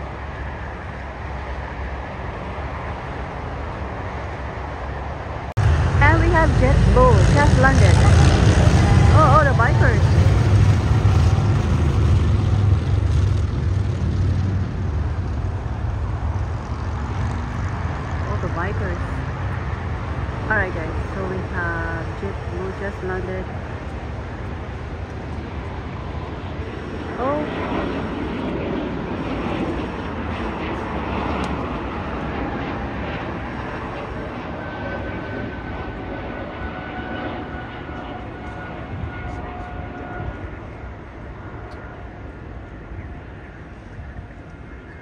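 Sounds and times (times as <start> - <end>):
motorcycle engines rumbling: 5.6 - 36.6.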